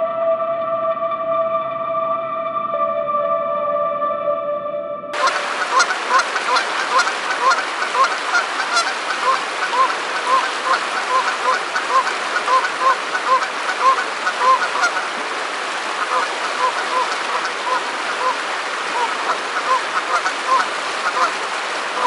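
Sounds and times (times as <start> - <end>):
ambient music: 0.0 - 5.9
geese honking: 5.2 - 15.2, 15.8 - 22.0
river rushing: 5.2 - 22.0.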